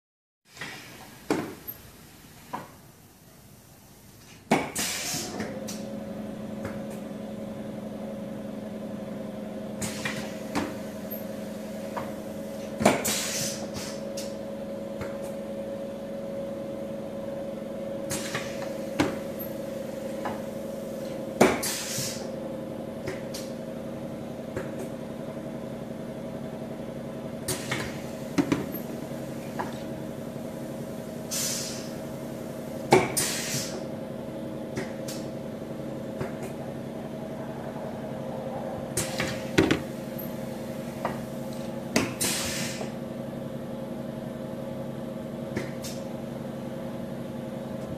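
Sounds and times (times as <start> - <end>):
steady machine hum: 0.6 - 47.9
pneumatic cylinder clacks: 4.2 - 5.8, 9.8 - 11.3, 11.9 - 14.4, 18.1 - 19.6, 21.0 - 22.3, 27.4 - 29.8, 32.9 - 33.9, 41.9 - 43.0
air hiss bursts: 4.8 - 5.4, 13.0 - 14.0, 21.6 - 22.3, 31.2 - 32.0, 33.1 - 33.8, 42.2 - 43.0.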